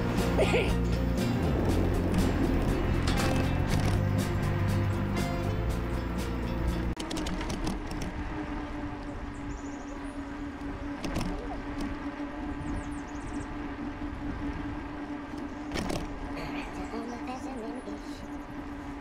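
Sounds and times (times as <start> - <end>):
wind noise: 6.8 - 19.0
electric bike motor whine: 7.0 - 16.4, 18.2 - 19.0.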